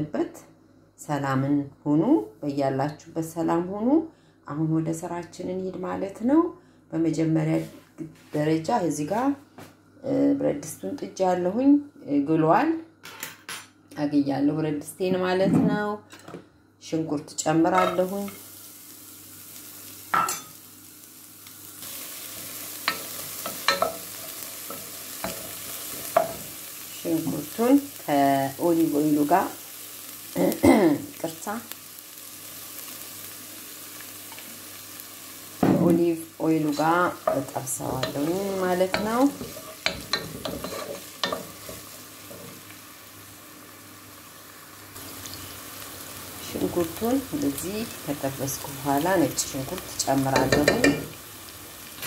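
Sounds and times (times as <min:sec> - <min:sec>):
onions sizzling in oil: 0:17.3 - 0:52.0
wooden spoon knocking on pan: 0:50.4 - 0:51.1.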